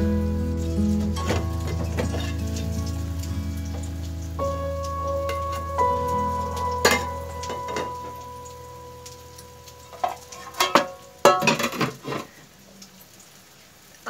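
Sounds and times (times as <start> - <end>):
metal kitchenware clinking: 1.2 - 2.8, 6.8 - 8.3, 9.9 - 12.3.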